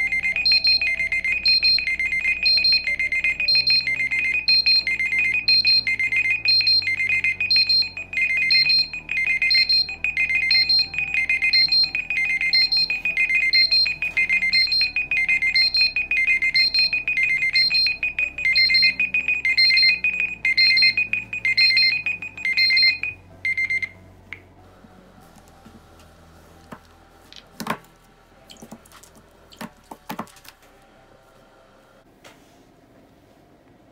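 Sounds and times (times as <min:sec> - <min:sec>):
phone alarms beeping: 0:00.0 - 0:24.0
steady alarm tone: 0:00.0 - 0:24.0.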